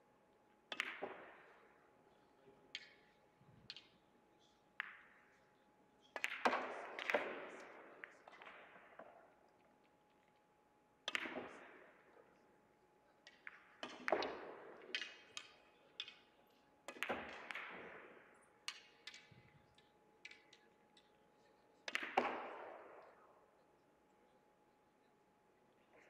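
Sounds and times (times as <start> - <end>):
faint high hum: 22.6 - 26.0.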